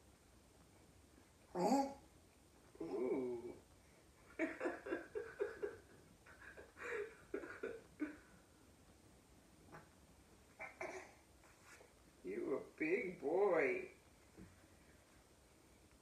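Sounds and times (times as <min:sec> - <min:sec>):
woman laughing softly: 0:04.2 - 0:08.5.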